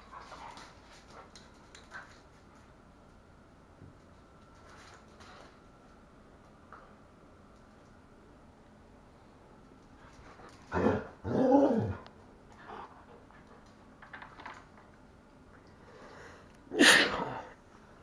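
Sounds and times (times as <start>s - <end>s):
dogs growling while play-fighting: 10.6s - 12.9s.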